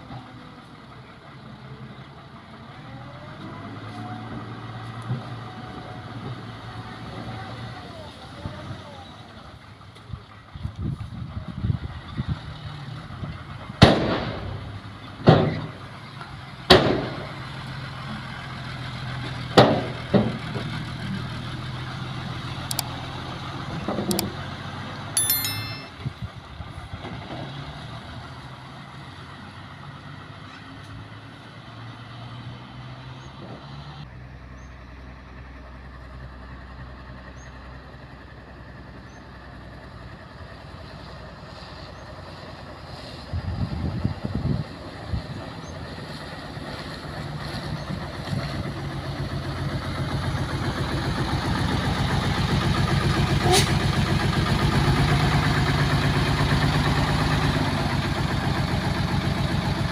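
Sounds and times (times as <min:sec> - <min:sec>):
short chime: 0:25.2 - 0:26.2
truck diesel engine humming: 0:44.7 - 0:59.9.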